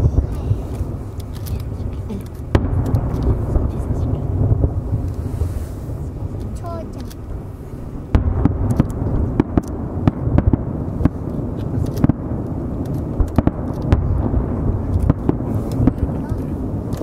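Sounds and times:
fireworks bursting: 0.0s - 17.0s
low echoing rumble: 0.0s - 17.0s.

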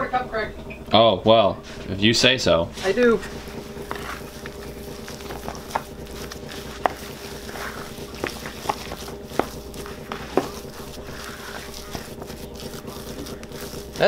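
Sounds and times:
wooden spoon mashing potato: 3.5s - 14.0s.

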